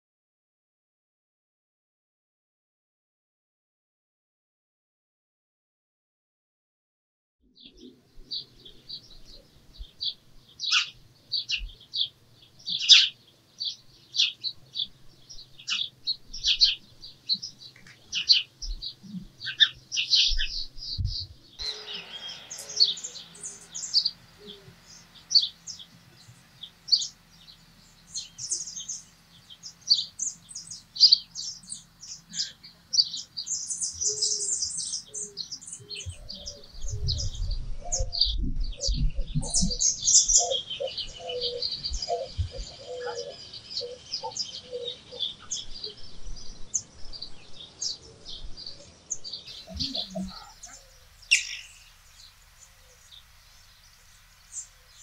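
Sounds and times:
small birds chirping: 7.6 - 55.0
faint steady hiss: 8.1 - 36.9, 45.2 - 55.0
low short notes: 21.6 - 31.3.

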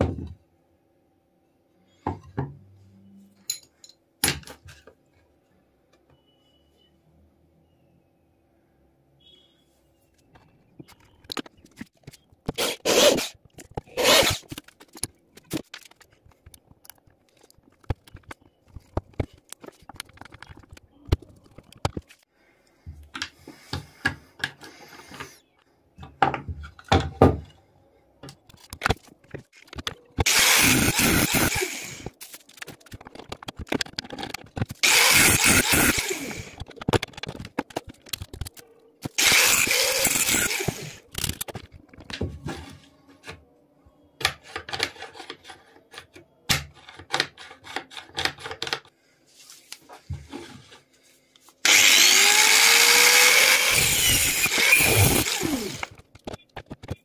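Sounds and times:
angle grinder cutting metal: 30.2 - 32.1, 34.8 - 36.6, 39.1 - 41.0, 51.6 - 56.0
clicks and knocks of parts handled: 32.0 - 34.9, 40.3 - 42.6, 44.2 - 48.9.

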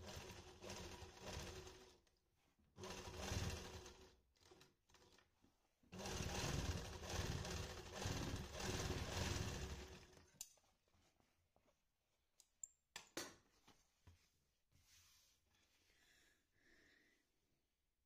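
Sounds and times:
sewing machine stitching: 0.0 - 2.0, 2.8 - 5.3, 5.9 - 10.3.

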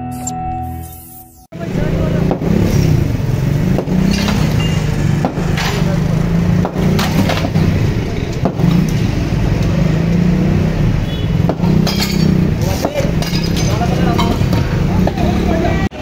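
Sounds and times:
concrete chunks clattering: 3.7 - 6.0, 6.6 - 9.0, 11.5 - 14.7
hammer smashing concrete: 3.7 - 9.0, 11.5 - 14.6.

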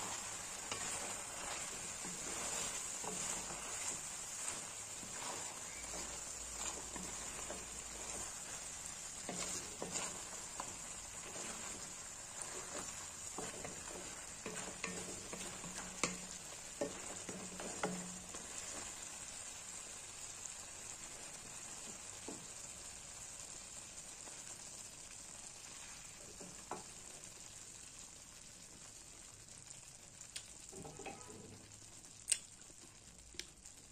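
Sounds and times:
spatula scraping a pan: 0.0 - 19.1, 30.7 - 31.6
food sizzling in a wok: 0.0 - 33.9.

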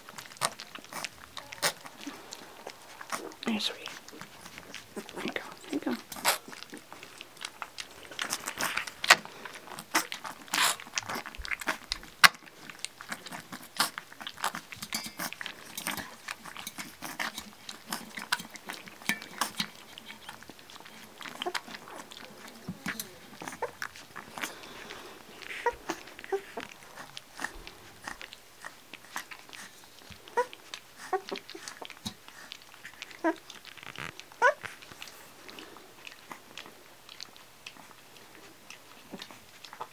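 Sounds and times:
puppies lapping milk: 0.0 - 39.9
puppy squeaks: 33.2 - 34.7.

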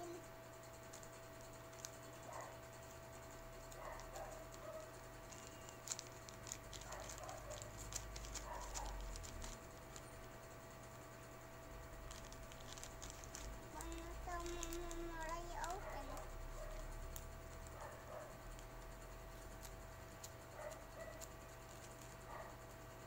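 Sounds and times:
plastic bag crinkling: 3.7 - 10.1, 11.9 - 17.8.

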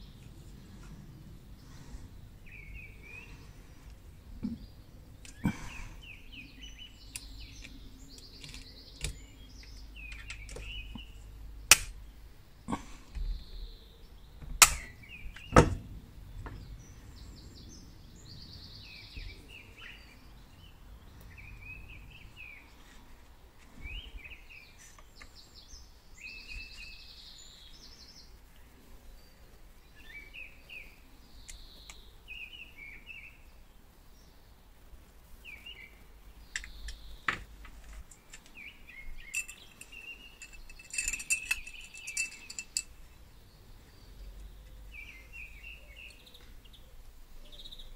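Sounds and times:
birds chirping and singing: 0.0 - 23.0, 23.7 - 34.6, 35.4 - 47.9
rivet gun snapping: 11.7 - 12.0, 14.6 - 14.9
light metallic clicks: 39.2 - 43.0.

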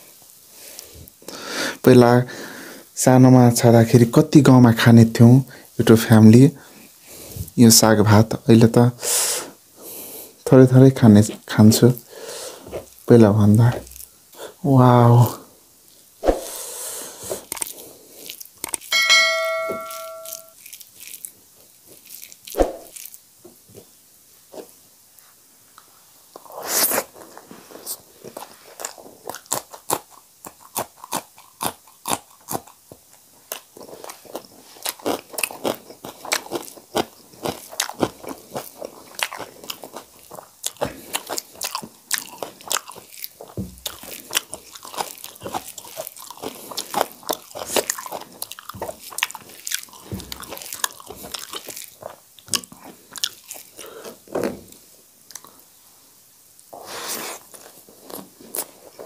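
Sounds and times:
close chewing with wet smacks: 17.3 - 18.9, 20.6 - 23.2, 27.8 - 55.7.

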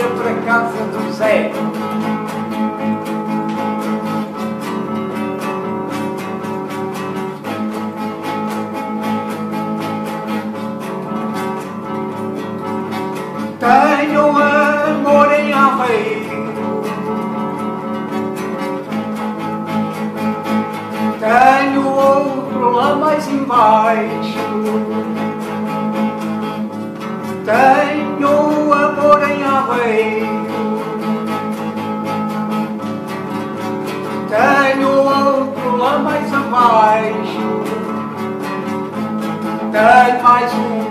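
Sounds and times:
man singing: 0.0 - 1.9, 13.5 - 17.4, 21.1 - 25.6, 27.4 - 31.6, 34.2 - 38.2, 39.5 - 40.9
classical guitar strumming: 0.0 - 40.9.

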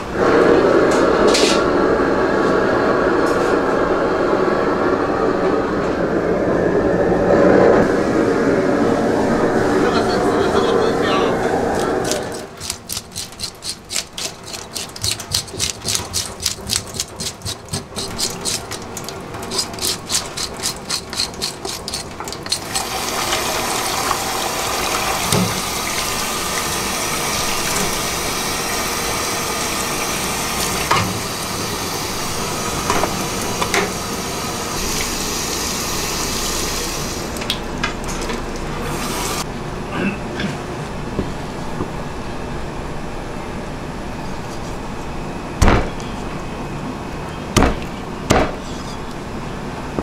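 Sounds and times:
tap water running into metal sink: 16.9 - 31.6.

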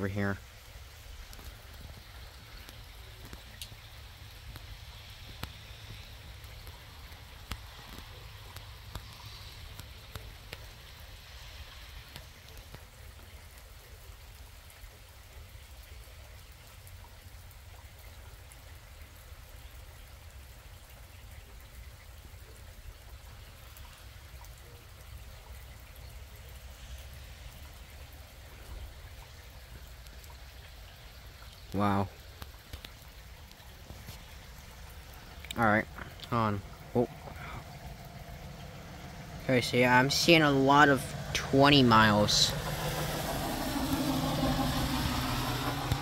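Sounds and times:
rain falling: 0.0 - 46.0
raindrops ticking close by: 0.0 - 46.0
steady low rumble: 32.1 - 46.0.

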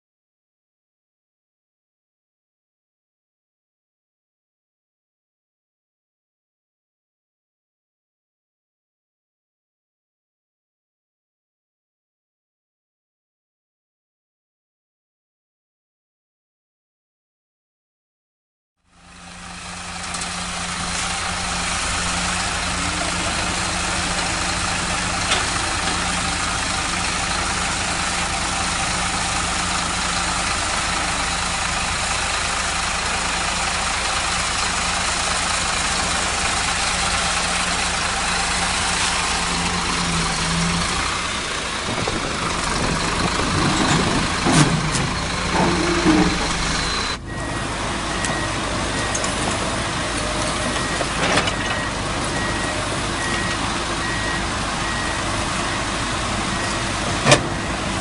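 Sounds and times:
truck diesel engine running: 18.9 - 58.0
hydraulic outrigger legs lifting: 41.9 - 47.2.

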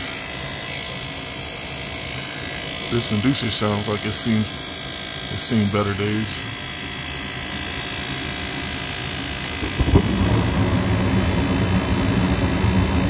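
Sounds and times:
furnace motor whirring and whining: 0.0 - 13.0
low rush of gas flame: 9.6 - 13.0.

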